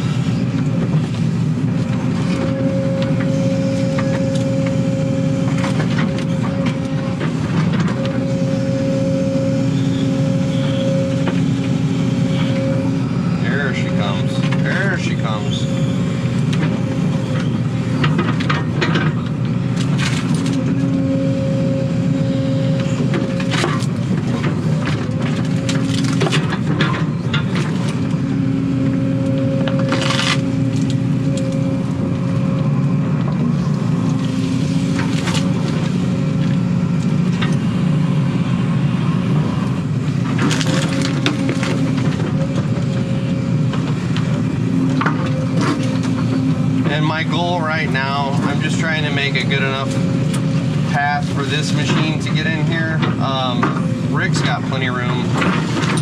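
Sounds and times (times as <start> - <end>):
diesel engine running: 0.0 - 56.0
hydraulic whine: 0.0 - 56.0
roots cracking and crunching: 19.2 - 38.0, 39.6 - 56.0.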